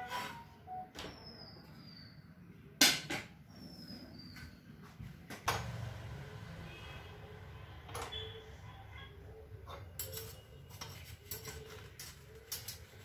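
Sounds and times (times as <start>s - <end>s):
pans and utensils clattering: 9.7s - 13.0s.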